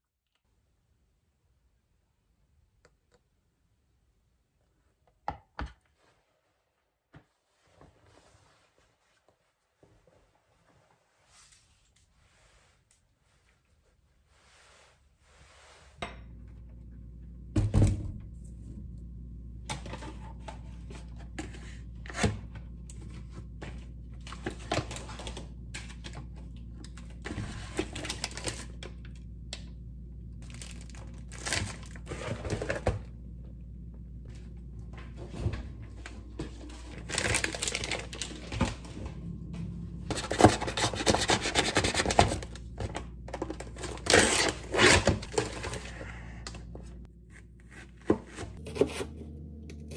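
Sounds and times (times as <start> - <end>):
steady low hum: 16.0 - 49.9
plastic packaging rustling: 26.9 - 28.8, 30.4 - 33.1, 36.1 - 38.9
knife cutting plastic film: 43.7 - 45.6.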